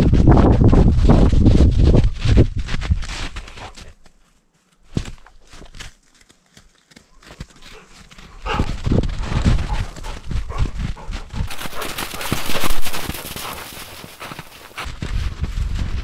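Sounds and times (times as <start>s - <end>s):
dog paws thudding on snow: 0.1s - 16.0s.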